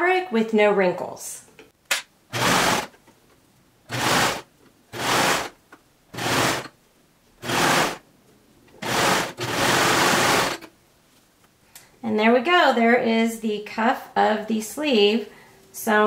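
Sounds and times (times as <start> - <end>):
serger sewing machine running: 2.3 - 2.9, 3.9 - 5.5, 6.1 - 6.7, 7.4 - 8.0, 8.8 - 10.7.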